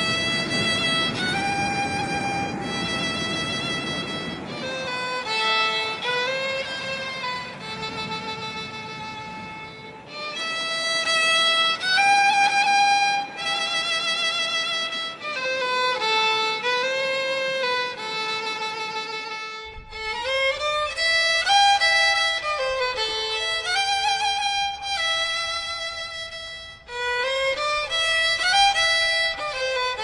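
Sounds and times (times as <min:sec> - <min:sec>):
solo violin melody: 0:00.0 - 0:30.0.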